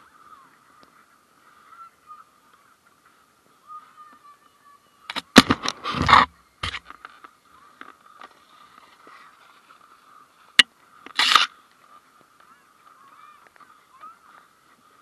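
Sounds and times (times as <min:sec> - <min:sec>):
plastic sled scraping on snow: 0:05.6 - 0:10.4.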